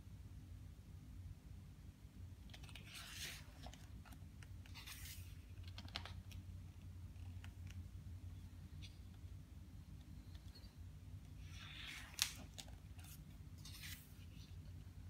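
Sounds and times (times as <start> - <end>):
paper page swishes: 4.7 - 5.4, 11.5 - 14.4.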